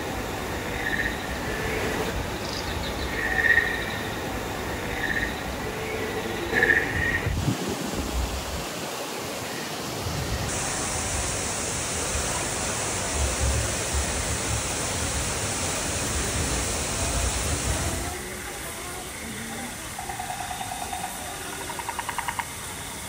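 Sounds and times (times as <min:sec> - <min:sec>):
steady rushing noise: 0:04.0 - 0:19.3.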